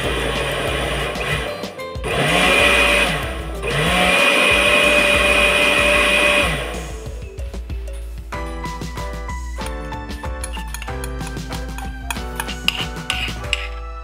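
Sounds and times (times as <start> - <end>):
electric blender whirring: 0.0 - 6.9.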